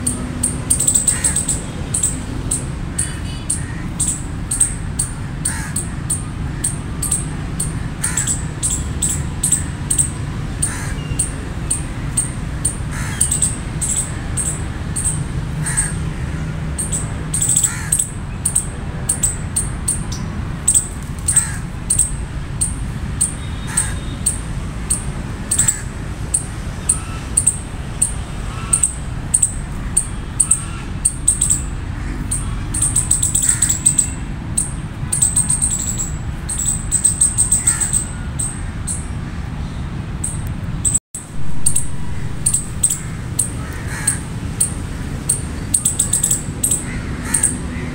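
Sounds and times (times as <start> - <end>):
squirrel lower calls: 0.0 - 39.3, 40.2 - 47.9
squirrels chirping: 0.0 - 47.9.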